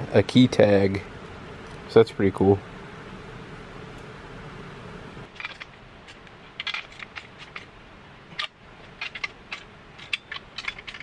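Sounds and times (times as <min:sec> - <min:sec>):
low steady hum: 0:00.0 - 0:11.0
small metal parts clinking: 0:05.3 - 0:11.0.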